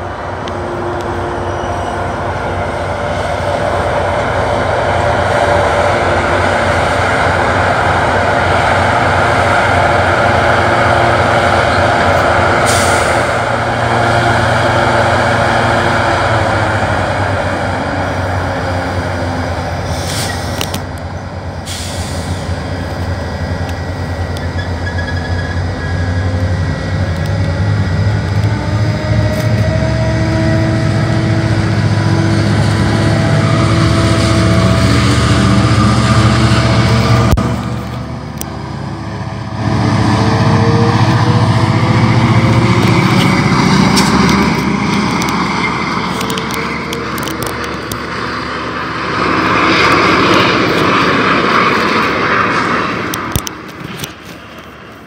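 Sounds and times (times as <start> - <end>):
locomotive engine humming: 0.0 - 55.0
air brake hisses: 12.6 - 13.4, 19.8 - 20.6, 21.6 - 22.6.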